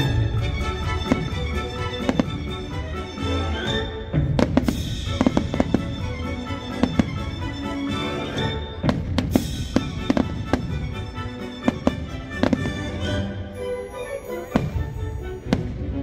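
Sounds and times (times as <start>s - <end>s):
music: 0.0s - 16.0s
fireworks bangs: 0.8s - 2.8s, 4.2s - 13.3s, 14.5s - 16.0s.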